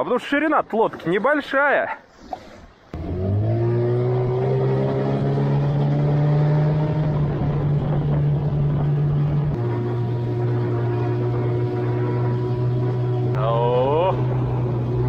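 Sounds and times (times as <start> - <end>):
outboard motor droning: 3.0 - 15.0.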